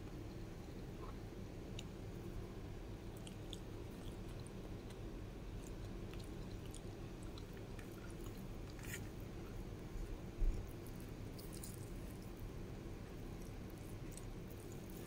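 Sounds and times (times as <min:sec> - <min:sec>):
person chewing food: 0:03.1 - 0:15.0.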